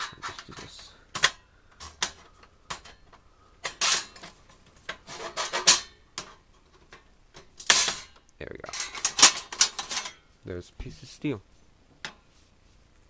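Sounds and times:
sheet metal scraping and clattering: 0:03.6 - 0:07.0, 0:07.6 - 0:10.2.

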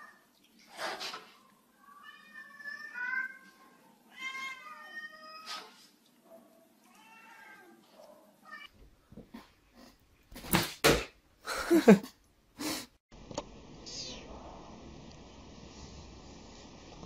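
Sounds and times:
cat meowing: 0:01.8 - 0:05.7, 0:06.8 - 0:07.8.

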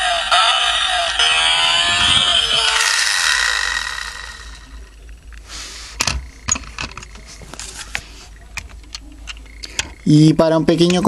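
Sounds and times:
electronic engine sound effect: 0:00.0 - 0:04.9.

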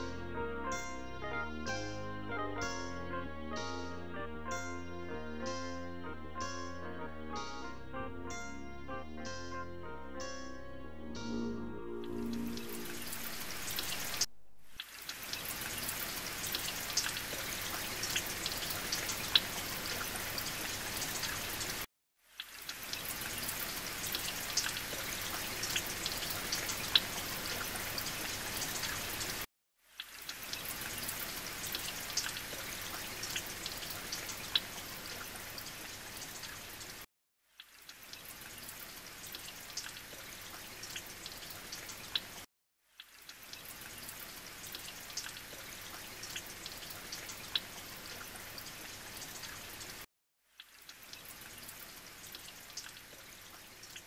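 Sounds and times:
water trickling into pool: 0:12.1 - 0:54.0.

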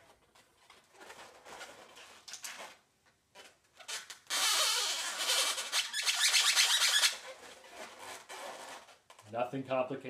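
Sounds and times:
marker rubbing on balloon: 0:03.4 - 0:09.0.

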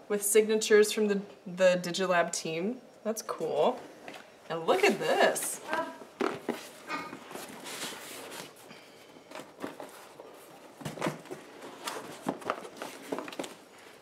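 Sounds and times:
cardboard rustling and scraping: 0:04.8 - 0:08.7, 0:09.3 - 0:14.0.

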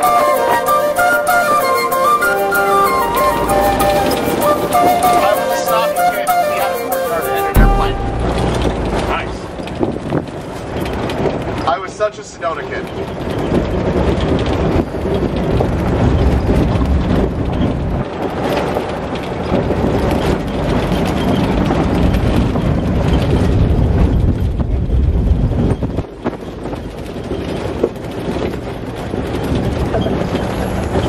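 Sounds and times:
jeep engine and road noise: 0:00.0 - 0:31.0
wind buffeting microphone: 0:07.6 - 0:11.7, 0:12.8 - 0:31.0.

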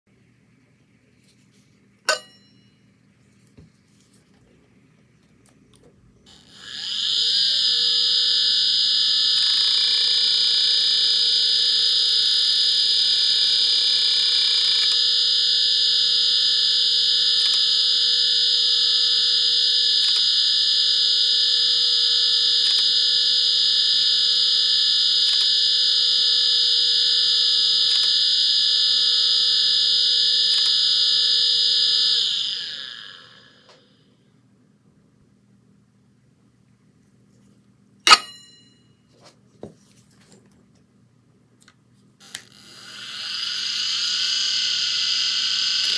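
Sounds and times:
hard drive whine: 0:03.5 - 0:15.7, 0:42.2 - 0:45.9
sharp click: 0:38.1 - 0:38.4
harsh buzz: 0:42.2 - 0:45.9.

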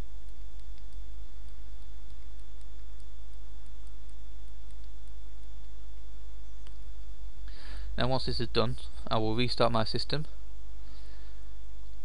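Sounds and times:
faint high whine: 0:00.0 - 0:12.0
low electrical hum: 0:00.0 - 0:12.0
light ticks: 0:00.2 - 0:05.8.

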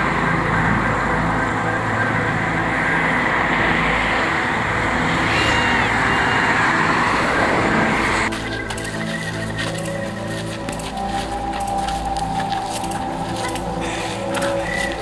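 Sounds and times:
cars driving past: 0:00.0 - 0:11.4.

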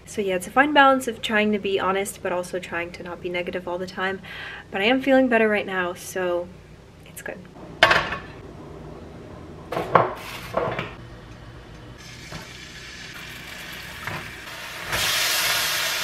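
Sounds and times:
food sizzling in oil: 0:12.0 - 0:16.0.

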